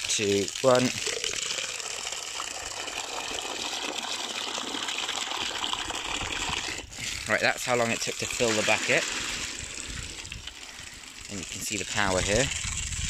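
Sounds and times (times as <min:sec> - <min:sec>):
water splashing into bucket: 0:00.0 - 0:13.0.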